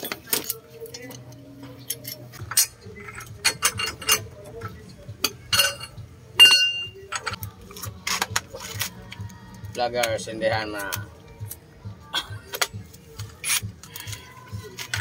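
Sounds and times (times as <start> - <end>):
hand tools tapping on metal: 0.0 - 7.4
ringing metal clank: 5.3 - 7.4.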